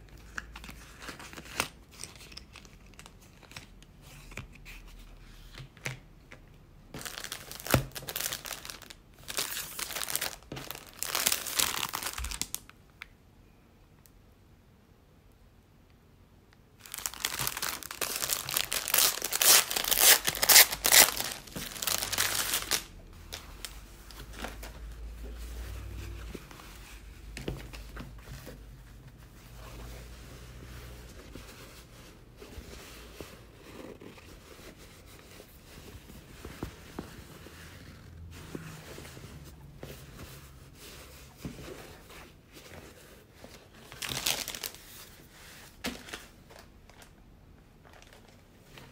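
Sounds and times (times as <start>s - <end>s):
plastic packaging crinkling: 7.0s - 12.8s, 16.8s - 25.1s, 43.5s - 45.2s, 47.8s - 48.9s
canvas bag rustling: 16.8s - 24.8s.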